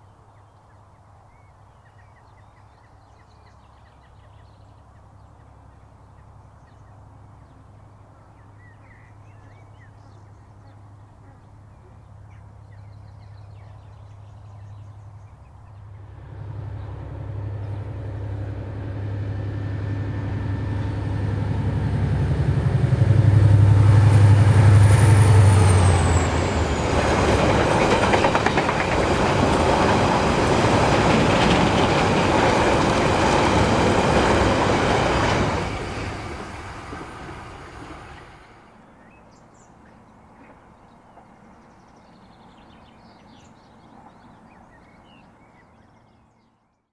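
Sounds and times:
diesel locomotive engine drone: 14.6 - 39.1.

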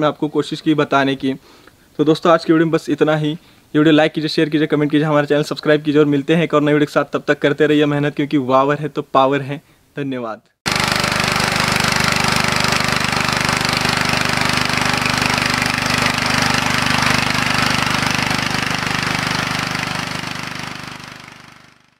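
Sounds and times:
soil tilling rattle and hiss: 10.7 - 21.8
diesel tiller engine chugging: 10.7 - 21.9.

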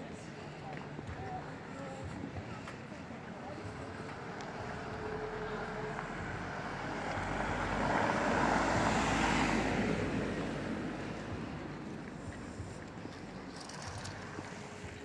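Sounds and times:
tyres on brick paving: 0.0 - 15.0
car driving past: 5.2 - 11.7.

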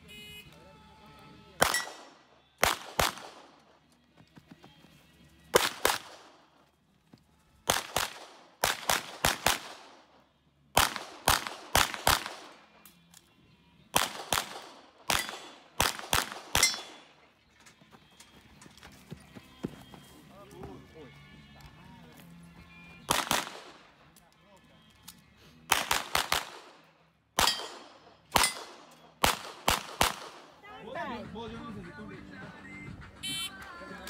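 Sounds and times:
pistol shots with short echo: 1.6 - 3.7, 5.5 - 6.5, 7.6 - 10.1, 10.8 - 12.8, 13.9 - 17.2, 23.1 - 24.0, 25.7 - 30.6.

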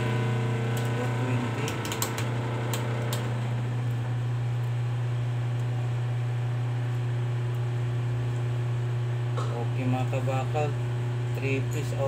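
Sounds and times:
electric motor humming: 0.0 - 6.7.

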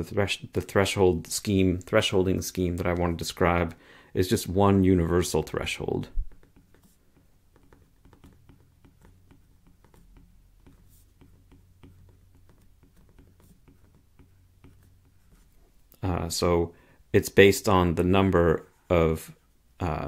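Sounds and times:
stylus tapping on tablet: 6.2 - 15.5.

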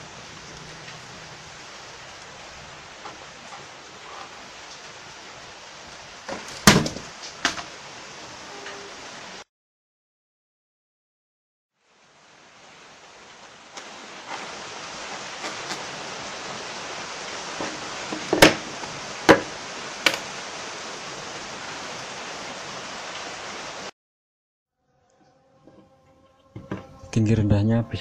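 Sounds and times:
steady hiss: 0.0 - 9.4, 11.8 - 23.9
wood knocking on wooden table: 26.6 - 26.9.

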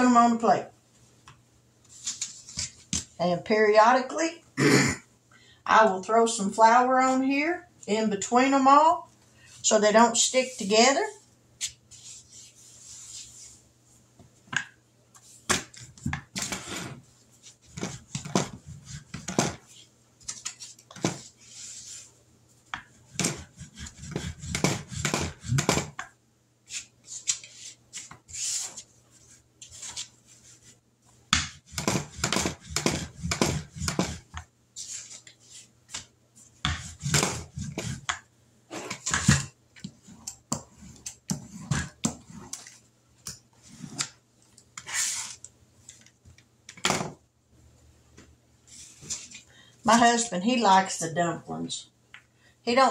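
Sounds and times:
rolling pin rolling dough: 15.5 - 19.8, 20.8 - 27.0, 27.6 - 42.6.

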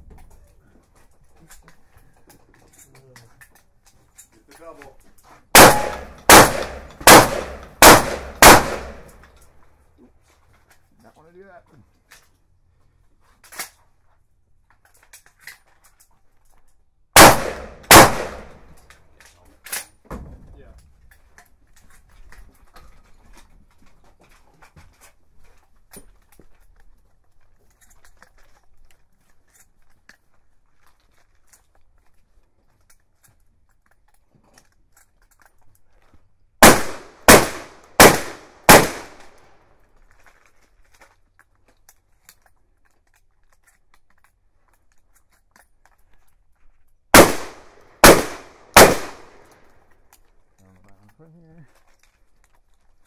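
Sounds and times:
shotgun shots echoing: 5.5 - 9.2, 17.2 - 18.7, 36.6 - 39.4, 47.1 - 49.5.

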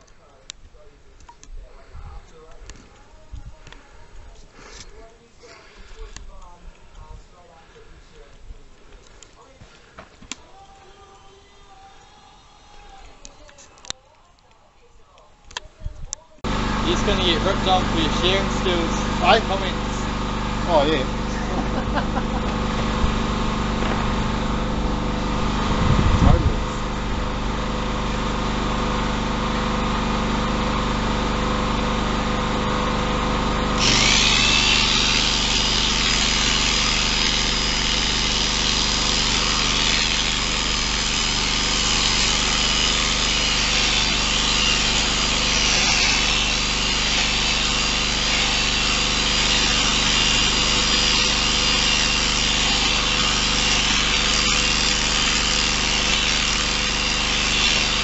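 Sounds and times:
electric shears whirring: 9.8 - 14.0, 16.4 - 58.0
steady motor hum: 16.4 - 58.0.

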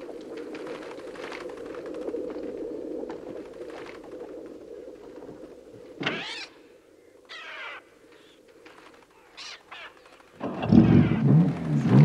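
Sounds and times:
harsh bird screeches and caws: 6.0 - 6.6, 7.3 - 11.2.

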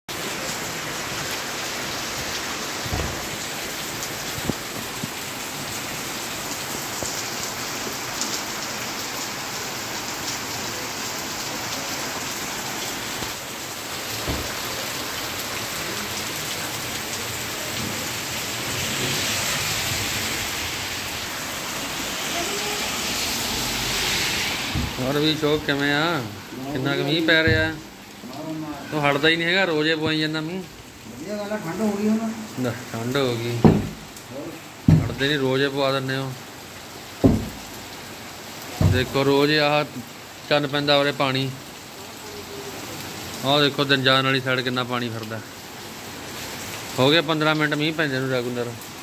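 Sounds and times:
heavy rain splashing on road: 0.1 - 49.0
dull knocks: 2.9 - 3.4, 14.2 - 14.7, 24.7 - 25.0, 27.4 - 27.9, 33.6 - 34.1, 34.9 - 35.3, 37.2 - 37.7, 38.8 - 39.2.

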